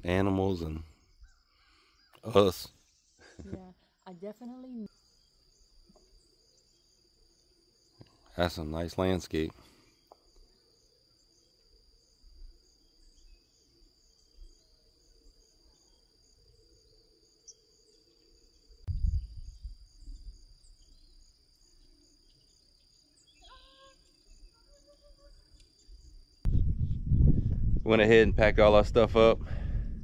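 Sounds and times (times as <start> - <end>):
insects chirping: 0.0 - 28.2
short calls: 23.4 - 25.4.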